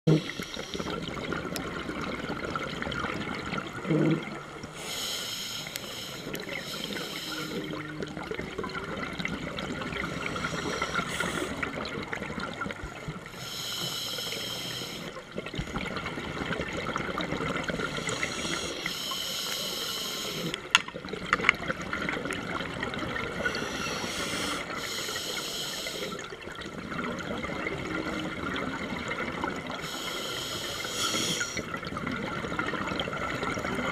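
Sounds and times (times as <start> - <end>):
bubbly hissing underwater breathing: 0.1 - 1.3, 3.8 - 7.9, 9.6 - 12.0, 13.2 - 15.8, 17.6 - 20.7, 23.2 - 26.4, 29.6 - 31.8.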